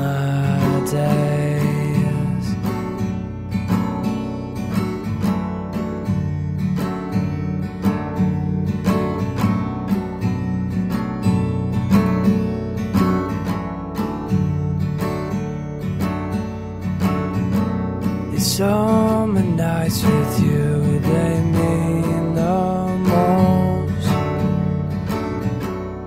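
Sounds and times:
acoustic guitar strumming chords: 0.0 - 26.0.

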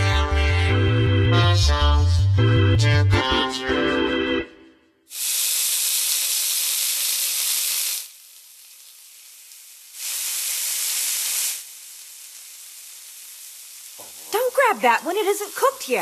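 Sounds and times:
meat sizzling: 5.1 - 16.0.

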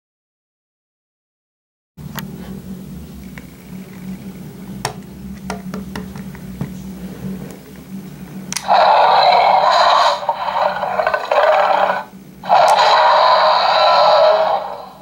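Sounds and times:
toy dinosaur electronic roar: 8.6 - 15.0.

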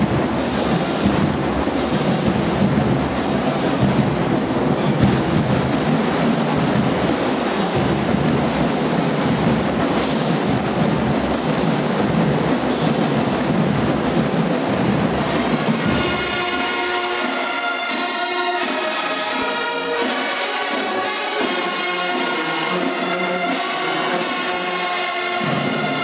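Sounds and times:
drumline playing percussion cadence: 0.0 - 26.0
brass section sustained chords: 15.2 - 26.0.

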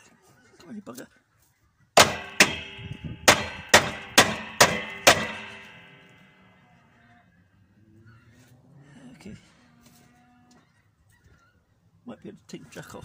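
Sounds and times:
hammer clanging on metal: 2.0 - 6.3.

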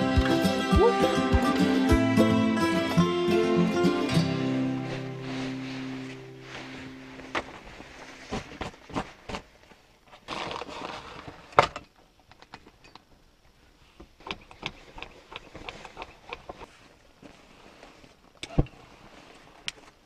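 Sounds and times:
stuff sack rustling: 4.1 - 11.5.

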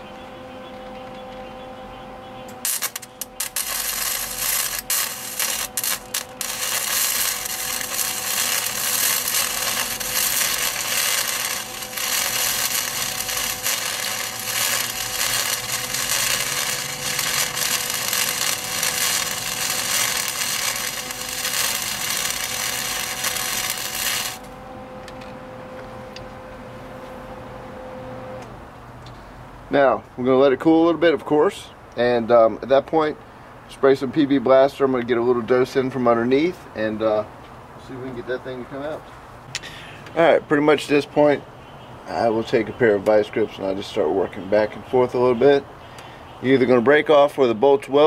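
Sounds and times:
welder arc crackling: 2.5 - 25.2.

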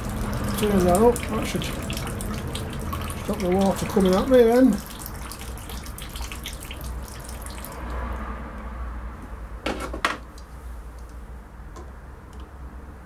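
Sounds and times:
water running from pipe: 0.0 - 8.1
fine water drips: 0.0 - 8.6, 10.3 - 11.2.

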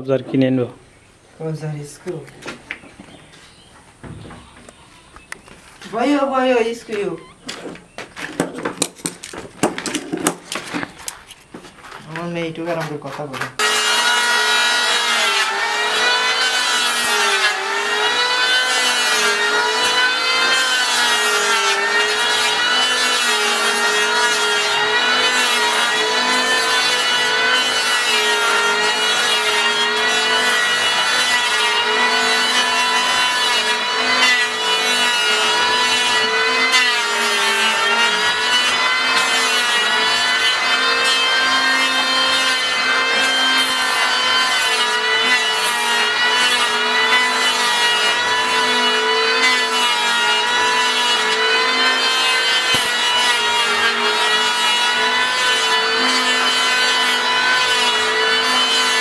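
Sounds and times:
electric hand planer cutting wood: 13.6 - 59.0.

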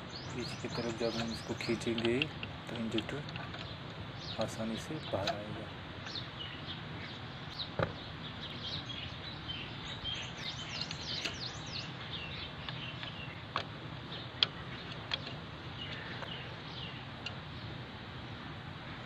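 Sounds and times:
small birds chirping: 0.0 - 19.0
metal engine parts clicking: 0.4 - 6.2, 10.4 - 17.5.

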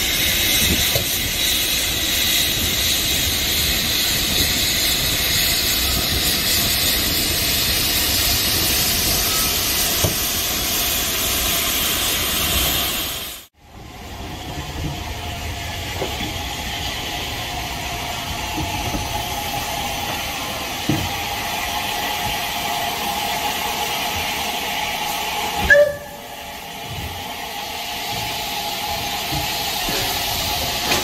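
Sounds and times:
steam hiss: 0.0 - 13.5, 14.4 - 31.0
running train noise: 0.0 - 31.0
short whistle-like blip: 25.6 - 26.2.

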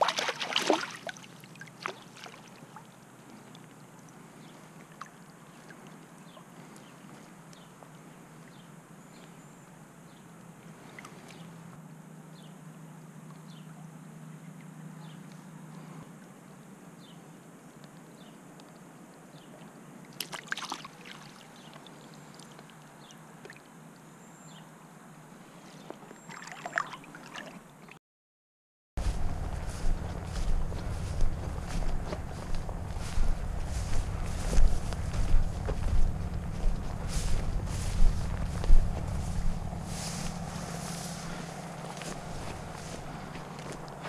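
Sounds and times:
water splashing: 0.0 - 4.1, 20.1 - 22.7, 26.2 - 28.0, 29.0 - 44.0
creek running: 0.0 - 8.8, 19.6 - 23.8, 25.9 - 28.0, 29.0 - 44.0.

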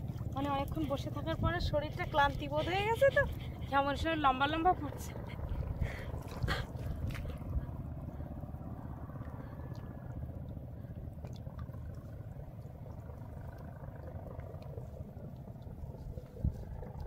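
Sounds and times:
wind buffeting microphone: 0.0 - 9.2, 15.0 - 17.0.

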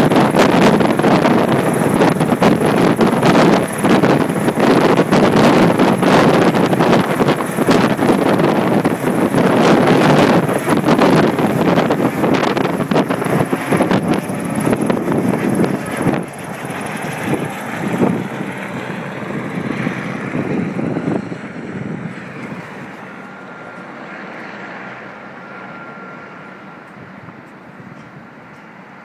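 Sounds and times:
helicopter rotor and turbine: 0.0 - 29.0.

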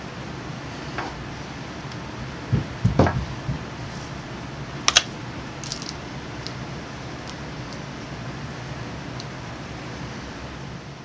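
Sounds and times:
steady hiss: 0.0 - 11.0
wooden knocks and thumps: 2.5 - 3.7.

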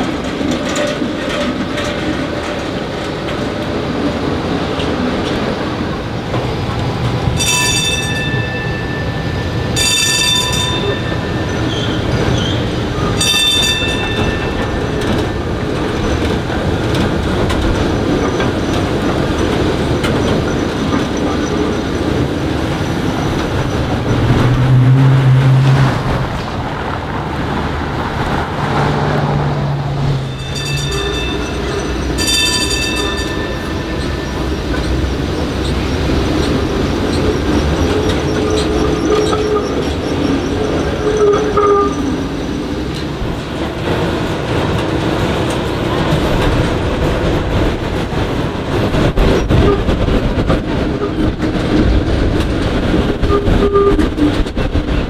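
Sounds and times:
streetcar wheels squealing: 7.3 - 26.8, 29.6 - 44.6, 48.9 - 55.0.

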